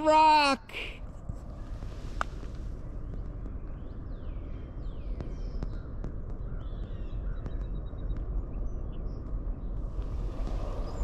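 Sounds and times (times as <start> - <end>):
steady low rumble: 0.9 - 11.0
birds chirping: 2.9 - 11.0.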